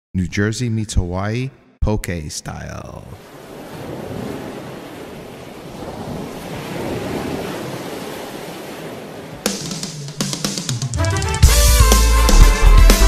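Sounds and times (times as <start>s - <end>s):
water churning in boat wake: 3.2s - 9.8s
wind buffeting microphone: 3.4s - 9.5s
drum-led music: 9.5s - 13.0s.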